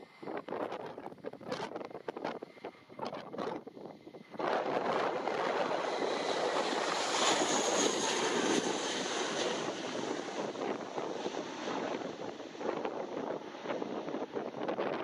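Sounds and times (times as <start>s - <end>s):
jet airliner taking off: 3.5s - 15.0s.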